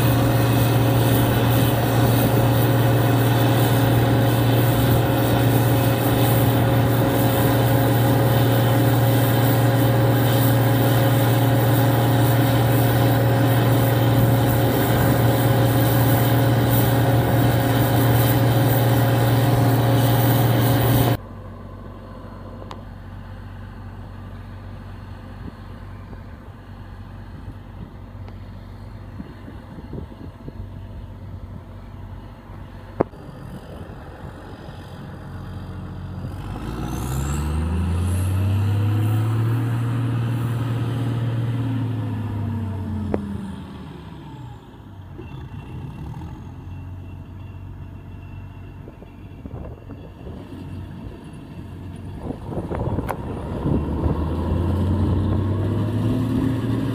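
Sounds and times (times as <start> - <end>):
combine harvester engine drone: 0.0 - 56.9.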